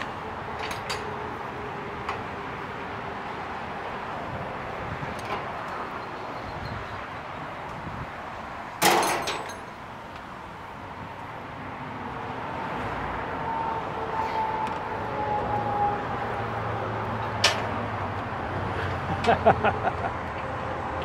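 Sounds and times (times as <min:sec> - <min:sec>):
passing traffic: 0:00.0 - 0:21.0
metallic clang: 0:08.8 - 0:09.8.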